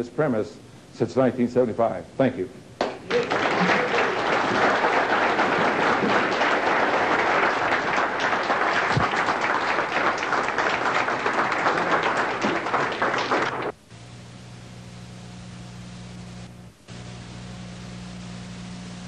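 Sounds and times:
large audience applauding: 0:02.8 - 0:13.8.

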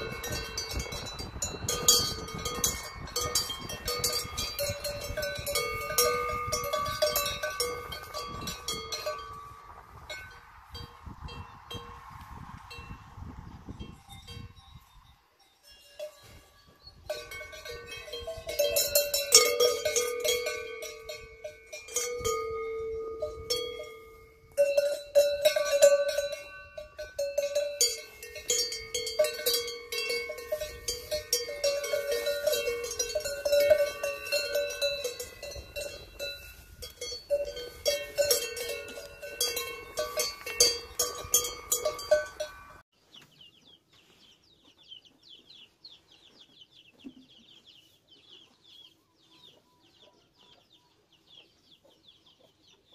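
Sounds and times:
cowbells clanking: 0:00.0 - 0:12.0, 0:13.8 - 0:42.8.

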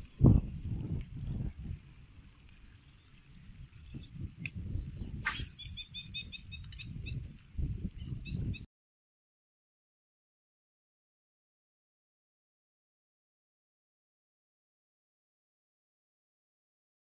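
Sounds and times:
wind rumbling on microphone: 0:00.0 - 0:08.7
brief sharp swish: 0:05.2 - 0:05.9
short high chirping notes: 0:05.2 - 0:06.2.

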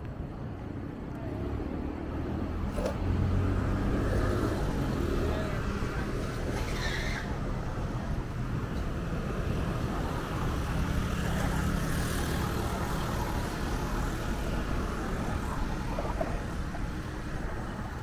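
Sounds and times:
road traffic rumble: 0:00.0 - 0:18.0.

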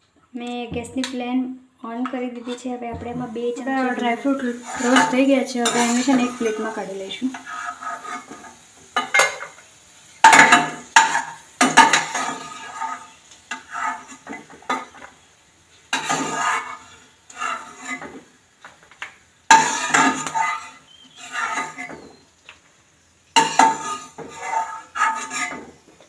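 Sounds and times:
metal skimmer scraping pan: 0:02.3 - 0:09.6, 0:10.2 - 0:15.2, 0:15.9 - 0:18.3, 0:19.5 - 0:22.2, 0:23.4 - 0:25.9.

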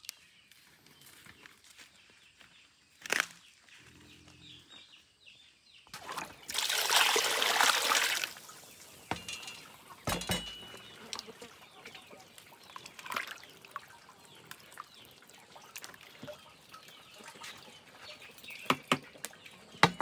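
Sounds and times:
water pouring and splashing: 0:05.9 - 0:20.0.

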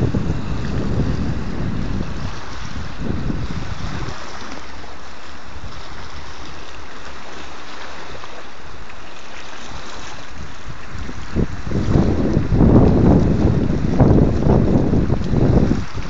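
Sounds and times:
wind gusting on microphone: 0:00.0 - 0:04.6, 0:09.7 - 0:16.0
choppy sea water: 0:00.0 - 0:16.0.

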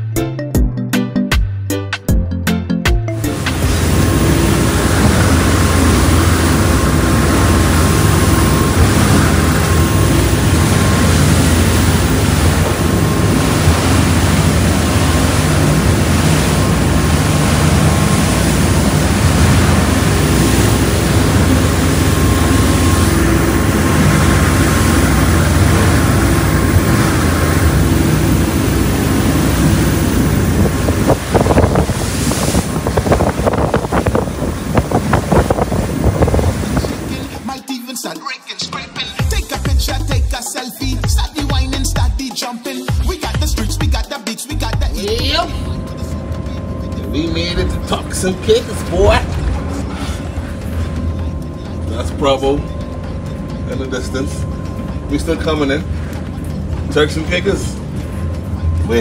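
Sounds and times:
bow wave rushing along hull: 0:03.1 - 0:37.6, 0:44.8 - 0:59.0
steady low hum: 0:03.2 - 0:37.5, 0:44.6 - 0:59.0
wind buffeting microphone: 0:03.4 - 0:37.4.

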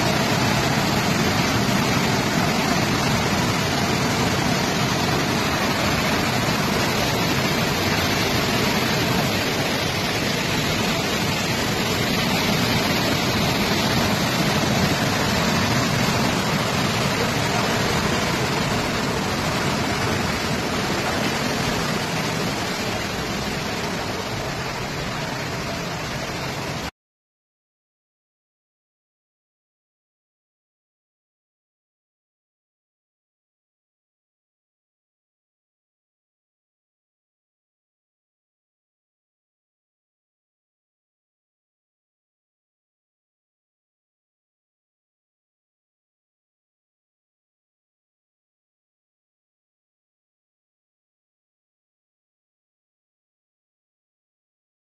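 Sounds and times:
floodwater rushing: 0:00.0 - 0:26.9.

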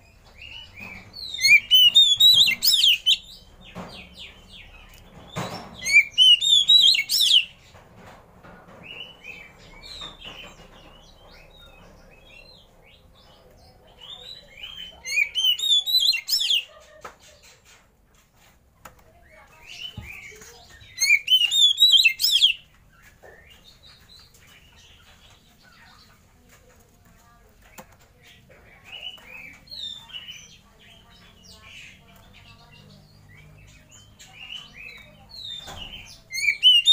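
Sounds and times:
soft bird chirps: 0:00.0 - 0:07.6, 0:19.3 - 0:26.2
bird singing whistled notes: 0:00.9 - 0:03.2, 0:05.8 - 0:07.5, 0:15.1 - 0:16.6, 0:21.0 - 0:22.6, 0:34.6 - 0:36.9.

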